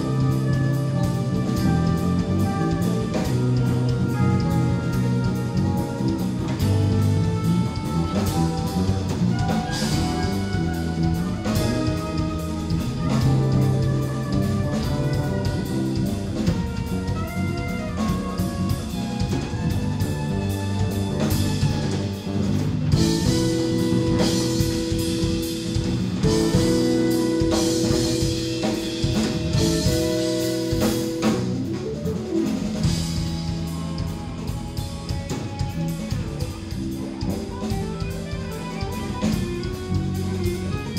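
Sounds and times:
drum kit: 0.0s - 40.9s
electric bass: 0.0s - 40.9s
electric guitar: 0.0s - 40.9s
jazz-rock band playing: 0.0s - 40.9s.

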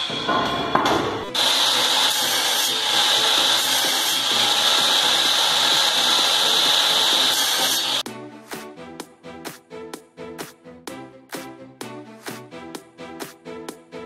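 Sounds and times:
miter saw high whine: 1.3s - 8.0s.

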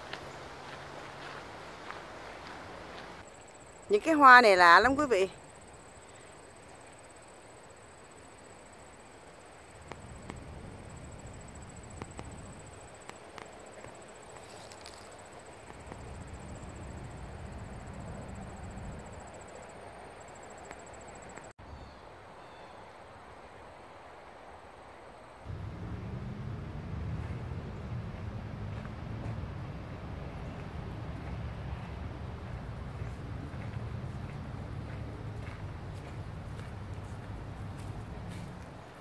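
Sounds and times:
insects trilling: 3.2s - 21.5s
low rumbling noise: 25.4s - 38.6s.

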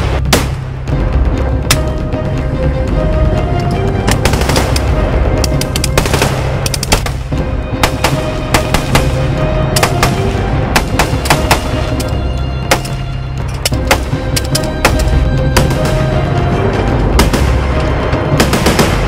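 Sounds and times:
background music with low notes: 0.0s - 19.0s
gunfire bursts: 7.8s - 12.0s.

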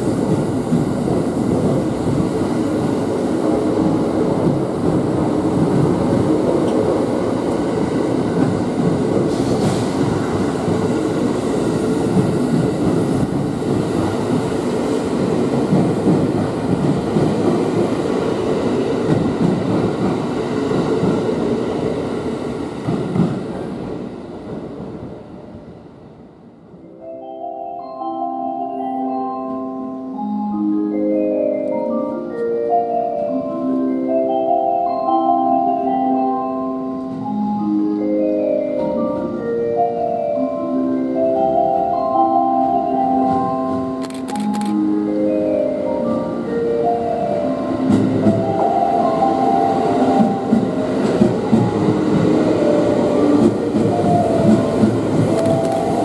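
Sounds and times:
electric train rolling past: 0.0s - 56.0s
marimba-like chime melody: 26.9s - 44.0s.

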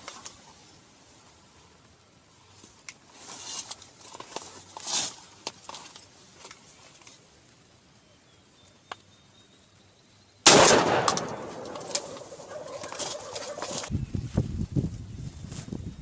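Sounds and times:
turkey gobbling: 11.8s - 13.9s.

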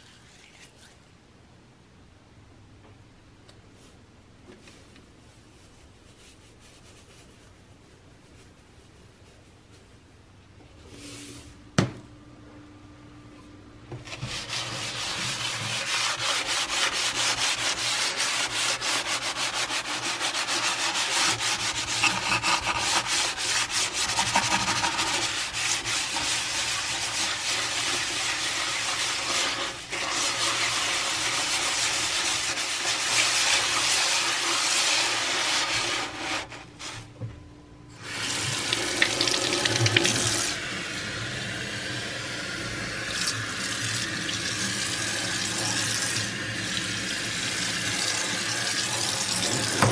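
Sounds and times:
gritty scrubbing on steel sink: 14.0s - 37.0s
tap water running into sink: 38.1s - 40.5s, 43.1s - 49.9s.

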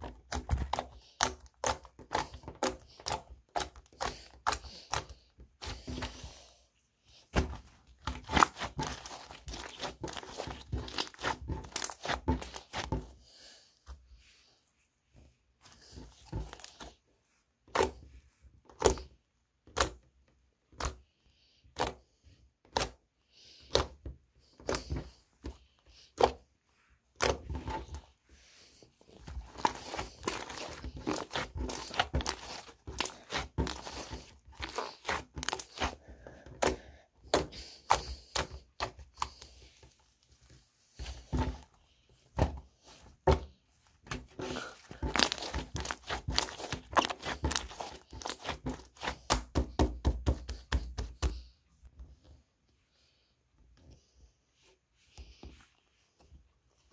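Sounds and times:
slime squished by fingers: 7.6s - 12.9s, 29.3s - 36.0s, 44.1s - 49.6s.

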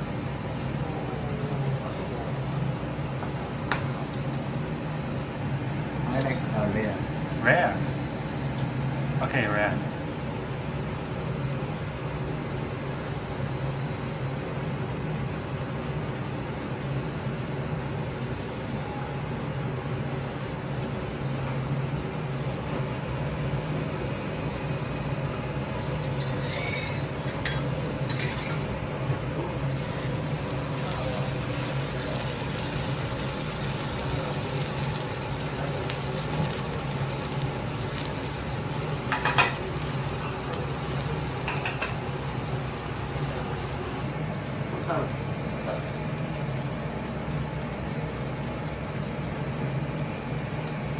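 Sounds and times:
steady low hum: 27.7s - 50.9s
steak searing on hot griddle: 29.6s - 50.9s.

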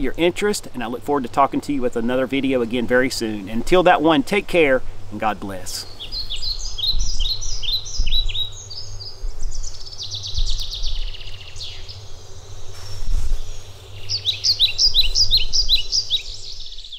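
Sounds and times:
songbirds chirping: 0.0s - 16.9s
bird trill: 5.7s - 12.3s, 13.5s - 16.9s.

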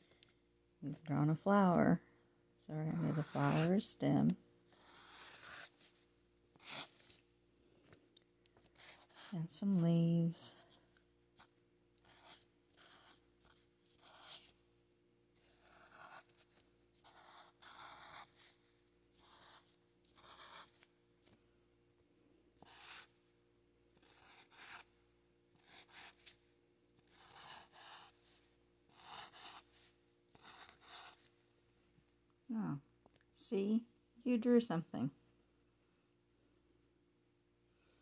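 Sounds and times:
marker scratching on paper: 2.9s - 4.0s, 4.7s - 7.2s, 8.6s - 10.8s, 11.4s - 14.6s, 15.4s - 21.4s, 22.6s - 23.2s, 24.0s - 26.4s, 27.0s - 31.3s.

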